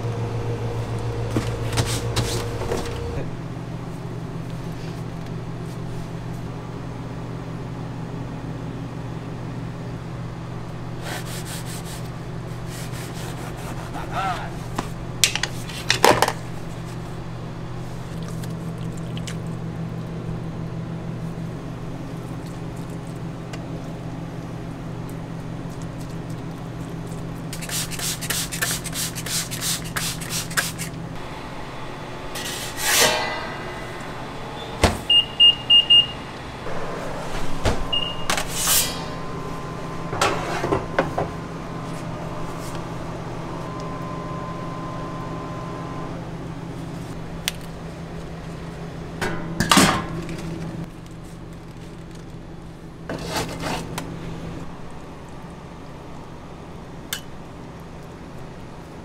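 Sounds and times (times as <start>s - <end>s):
kitchen equipment hum: 0.0s - 59.0s
short electronic beeps: 34.6s - 36.2s, 37.9s - 38.4s.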